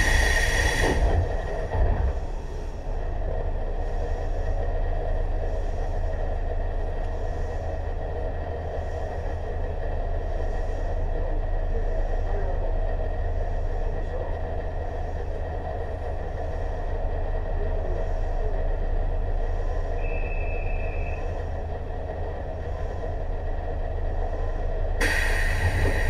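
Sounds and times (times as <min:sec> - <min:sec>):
electric train rumble and hum: 0:00.0 - 0:26.0.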